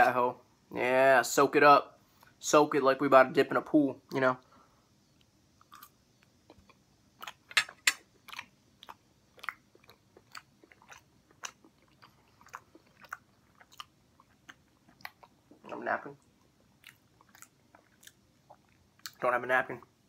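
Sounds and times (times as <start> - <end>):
person chewing food: 5.2 - 19.2.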